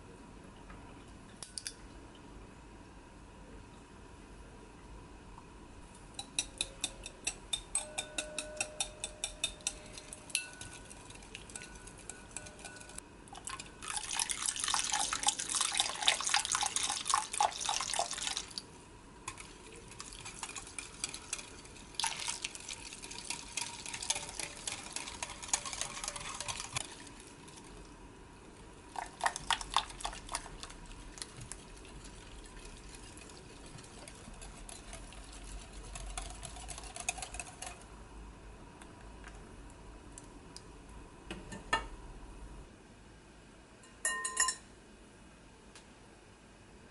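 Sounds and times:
whisk ticking on glass bowl: 6.2 - 14.2, 19.3 - 26.9, 29.0 - 37.9
fast whisking through liquid: 6.3 - 18.6, 19.3 - 27.7, 28.9 - 37.9.

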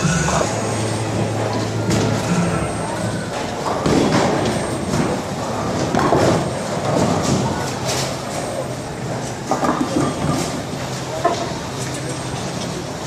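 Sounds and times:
clatter of bowling pins: 3.3 - 8.4, 9.5 - 10.6.

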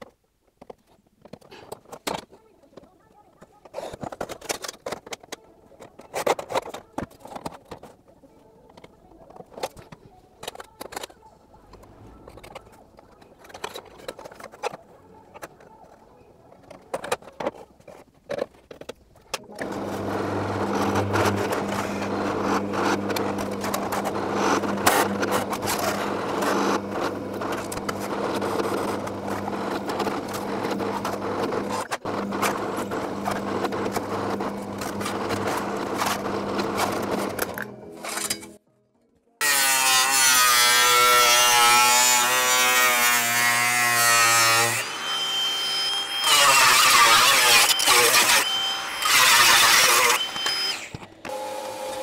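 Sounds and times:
workshop machine motor whirring: 19.4 - 37.7, 40.9 - 52.0.

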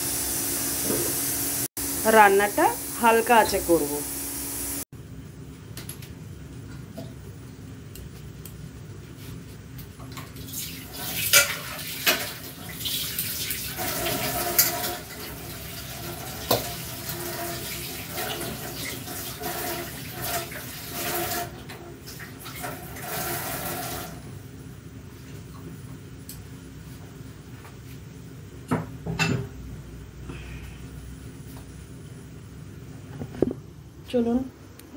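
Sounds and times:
tap water running into sink: 10.1 - 24.2.

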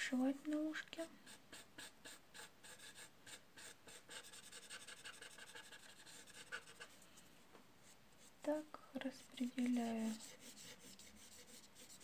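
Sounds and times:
dry scratching on paper: 1.2 - 7.0, 9.2 - 12.0.

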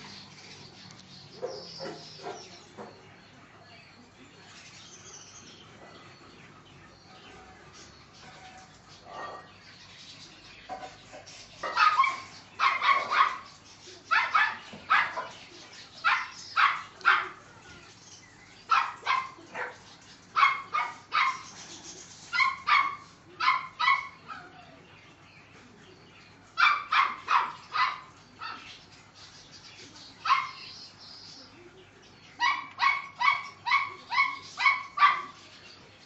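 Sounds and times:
puppies yapping: 0.9 - 2.9, 10.7 - 18.0, 18.6 - 24.8, 26.5 - 28.8, 30.2 - 30.7, 32.4 - 35.5.

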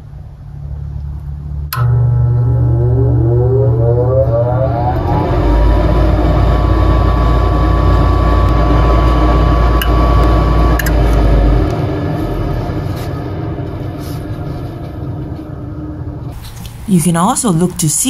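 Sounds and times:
furnace low hum: 0.0 - 18.0
high motor whine: 1.4 - 13.9.

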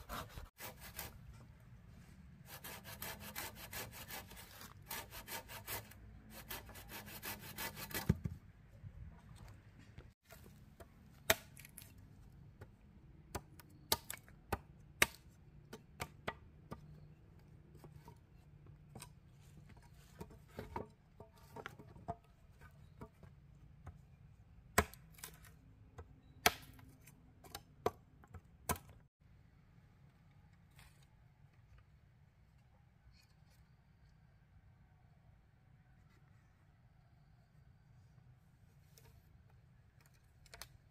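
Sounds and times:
machete chopping bamboo: 11.1 - 11.9, 13.3 - 16.8, 24.7 - 25.5, 26.4 - 26.8.

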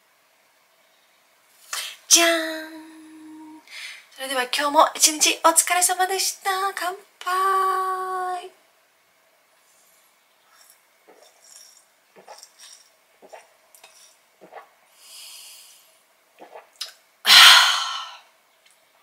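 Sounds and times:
breath through nose: 14.9 - 16.0
person gulping beer: 16.4 - 18.2
person sighing: 17.3 - 18.3.

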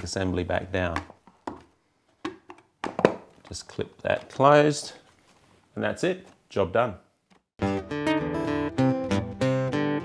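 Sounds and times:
acoustic guitar music: 7.6 - 10.0.

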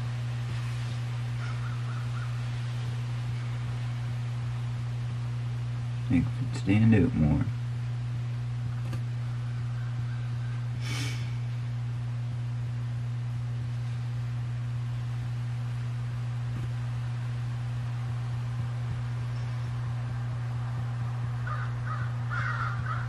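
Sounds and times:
low electrical hum: 0.0 - 23.0
brief hiss: 10.8 - 11.4.

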